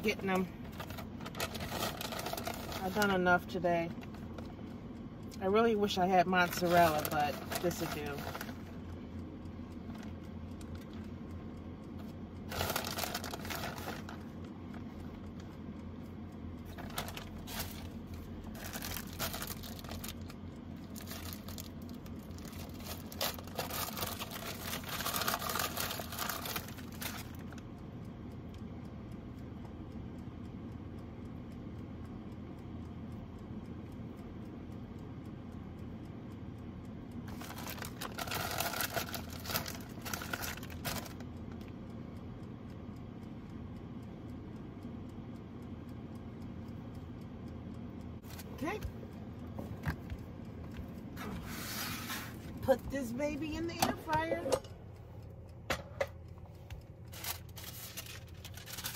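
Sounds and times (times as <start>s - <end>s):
steady low hum: 0.0s - 58.9s
plastic bag crinkling: 12.5s - 14.1s, 18.6s - 20.3s, 21.0s - 27.2s, 37.3s - 41.2s, 57.1s - 58.9s
plastic food package crinkling: 12.5s - 14.2s, 18.6s - 20.3s, 21.0s - 27.3s, 37.3s - 41.2s, 57.1s - 58.9s.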